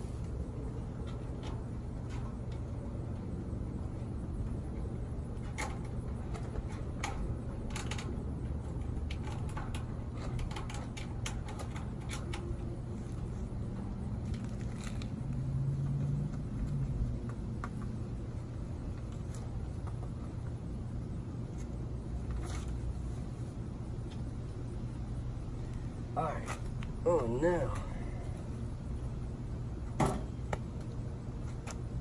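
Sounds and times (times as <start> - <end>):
grill parts clicking and rattling: 0.7 - 15.4.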